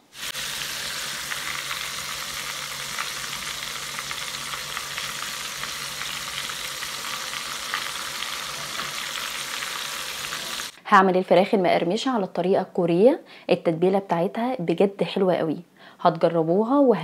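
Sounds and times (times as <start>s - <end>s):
chicken sizzling in hot oil: 0.0s - 10.8s.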